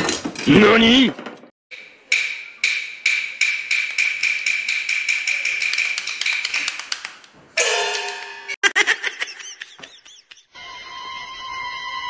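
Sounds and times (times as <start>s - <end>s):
pole tapping metal pan lid: 7.6s - 8.6s.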